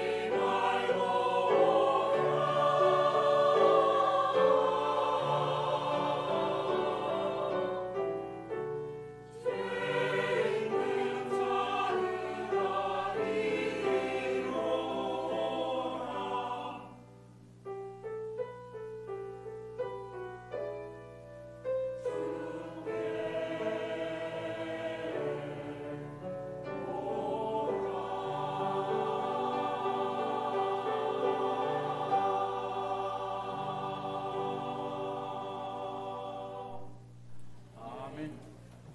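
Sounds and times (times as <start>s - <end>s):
choir singing a hymn: 0.0s - 17.2s, 19.7s - 37.1s
piano notes: 17.0s - 24.5s.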